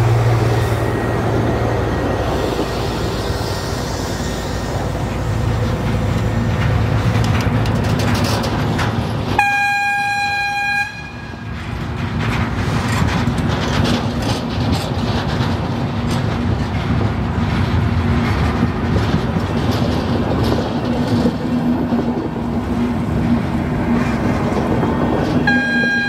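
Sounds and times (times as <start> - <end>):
train rumbling on rails: 0.0 - 26.0
train horn: 9.4 - 11.5, 25.4 - 26.0.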